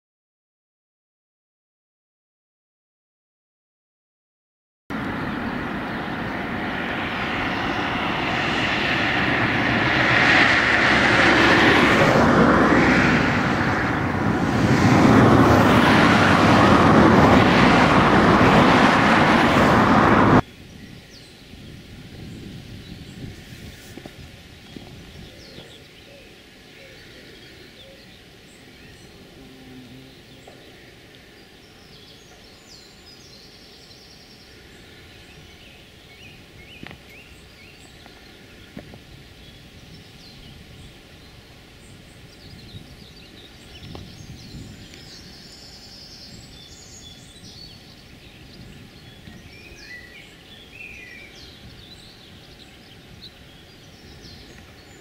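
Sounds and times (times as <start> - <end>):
low outdoor rumble: 4.9 - 20.4
songbirds chirping and trilling: 20.4 - 55.0.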